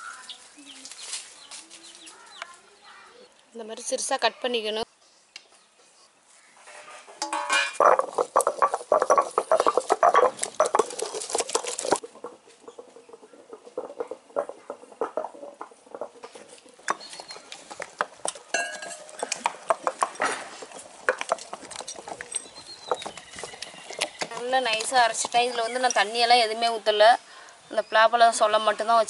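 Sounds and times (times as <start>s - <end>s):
stone grinding fruit on slab: 7.7s - 25.3s.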